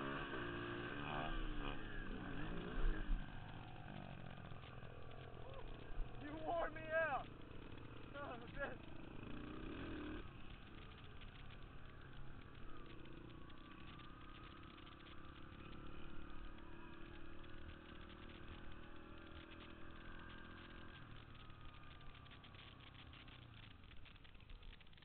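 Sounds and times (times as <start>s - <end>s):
dirt bike engine running: 0.0s - 25.0s.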